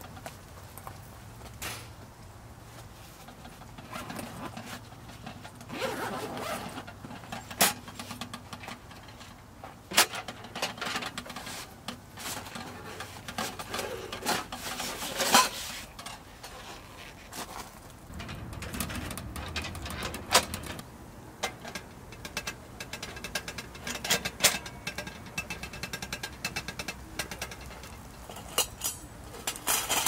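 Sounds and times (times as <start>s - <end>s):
zipper being drawn open: 5.7s - 6.8s.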